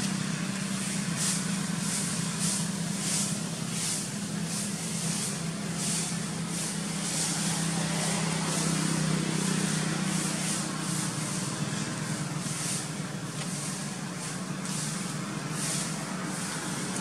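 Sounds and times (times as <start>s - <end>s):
high hiss: 0.0s - 17.0s.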